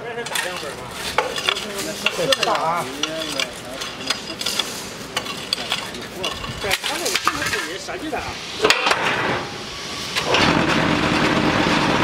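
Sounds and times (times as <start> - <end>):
concrete mix shovelled into steel mould: 0.3 - 7.9.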